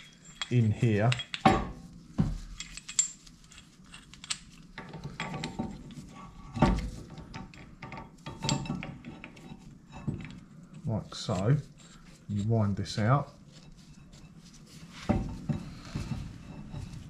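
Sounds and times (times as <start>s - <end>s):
metal tool parts clinking: 0.0s - 1.5s, 2.5s - 5.6s.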